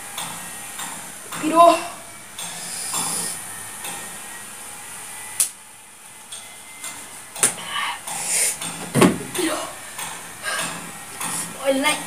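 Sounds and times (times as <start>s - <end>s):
person hissing air through mouth: 7.7s - 8.6s.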